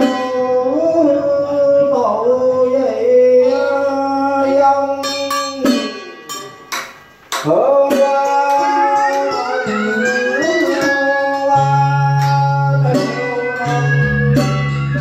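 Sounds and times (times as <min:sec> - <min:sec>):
plucked string instrument melody: 0:03.0 - 0:15.0.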